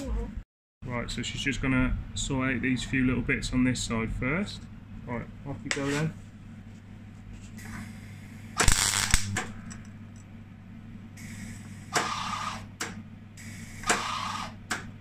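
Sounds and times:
welder arc crackling: 0:08.4 - 0:09.8.

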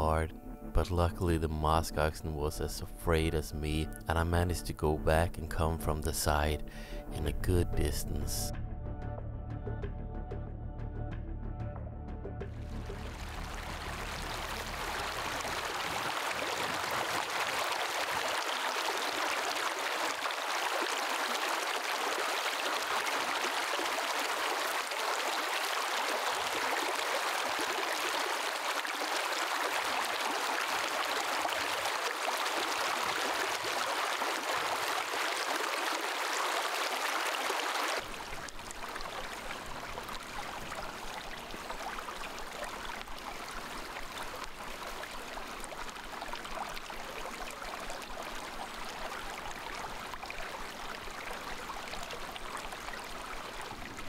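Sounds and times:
stream rushing over rocks: 0:12.6 - 0:54.0.

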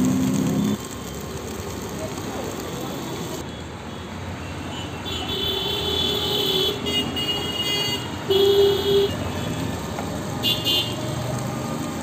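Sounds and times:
vehicle horns honking: 0:04.8 - 0:09.7.

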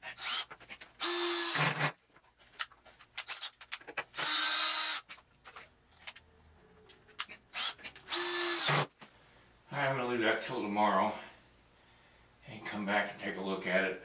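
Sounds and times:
cordless drill boring into wood: 0:00.2 - 0:02.0, 0:04.2 - 0:05.1, 0:07.5 - 0:08.9
clicks and knocks of handling: 0:02.1 - 0:04.1, 0:05.1 - 0:08.0.

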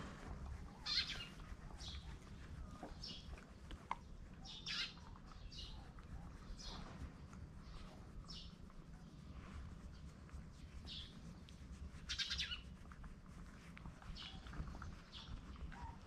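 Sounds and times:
faint low rumble: 0:00.0 - 0:16.0
small bird chirping: 0:00.8 - 0:07.0, 0:07.6 - 0:09.2, 0:09.9 - 0:11.4, 0:12.0 - 0:12.7, 0:14.1 - 0:16.0.

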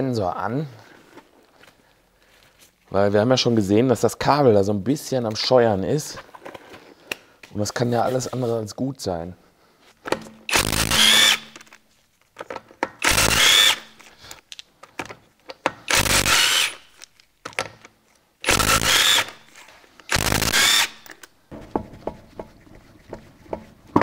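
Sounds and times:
impact wrench bursts: 0:10.5 - 0:11.7, 0:13.0 - 0:14.1, 0:15.9 - 0:17.0, 0:18.4 - 0:21.2.

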